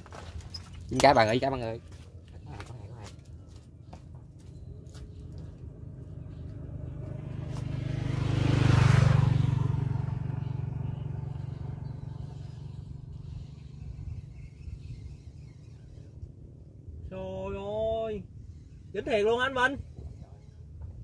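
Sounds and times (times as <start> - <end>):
passing engine: 4.3 - 14.4.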